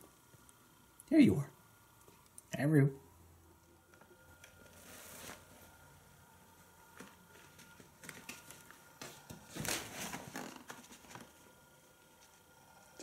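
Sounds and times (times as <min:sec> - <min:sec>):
tent fabric rustling: 0:04.8 - 0:05.7, 0:07.3 - 0:11.3.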